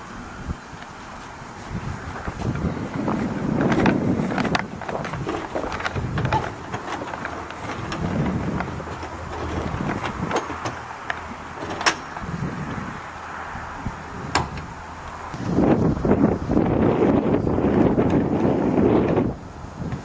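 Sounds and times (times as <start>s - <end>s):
wind noise on microphone: 0.0s - 20.0s
door latch clicking and knocking: 5.9s - 12.2s, 14.3s - 14.7s.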